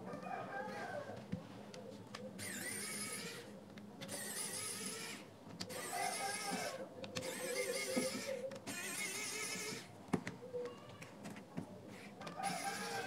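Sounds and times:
electric screwdriver whining: 2.4 - 9.9.

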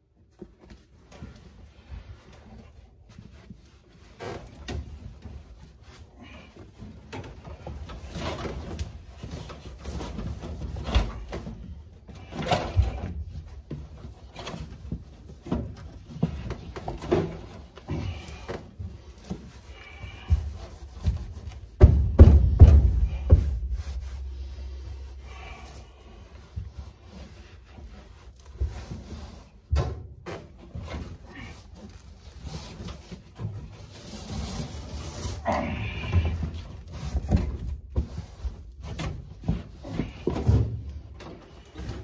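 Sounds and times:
carpet knocks and rubbing: 8.1 - 25.2.

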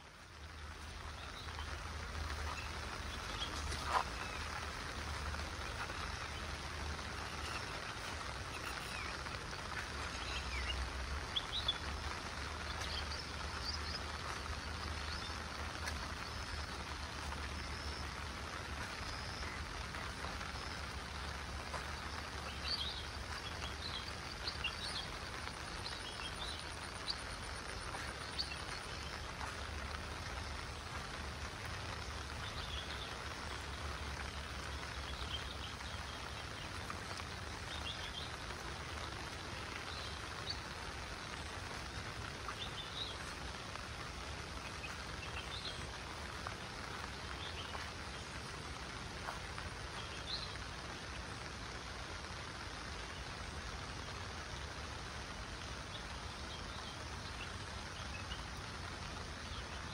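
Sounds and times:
birds chirping: 0.0 - 51.5
rain hiss: 0.0 - 59.9.

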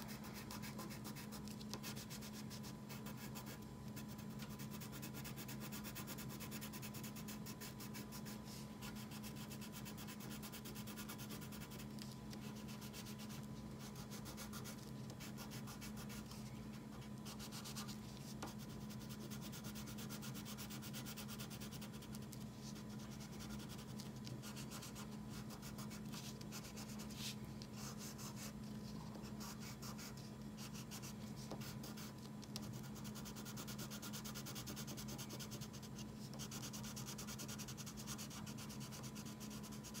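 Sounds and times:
faint low hum: 0.0 - 40.0
crayon rubbing on paper: 0.1 - 11.8, 17.2 - 28.5.

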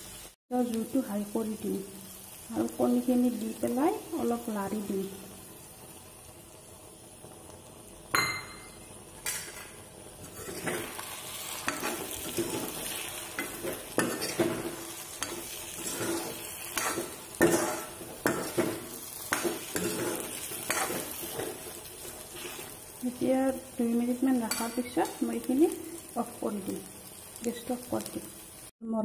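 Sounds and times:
food sizzling: 0.0 - 28.8
metal spoon scraping pan: 9.2 - 22.8.

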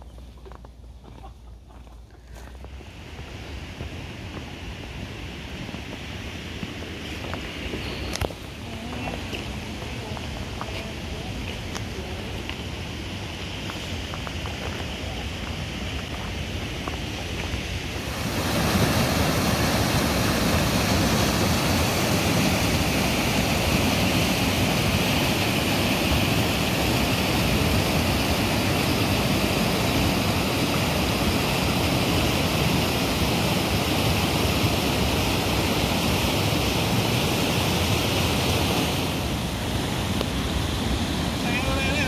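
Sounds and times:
waterfall pouring: 12.6 - 42.0.

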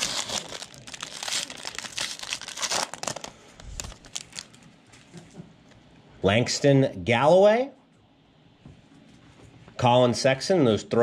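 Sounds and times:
plastic wrapper crinkling and tearing: 0.0 - 4.7.

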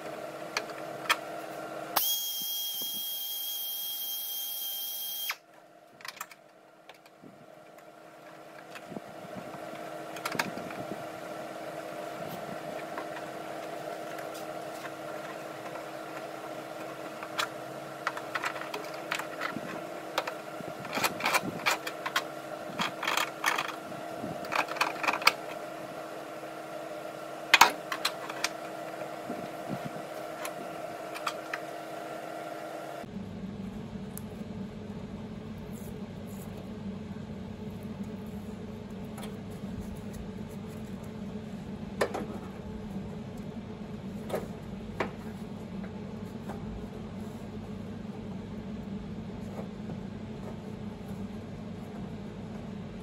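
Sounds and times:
workshop hum: 0.0 - 53.0
power tool running: 1.1 - 5.5.

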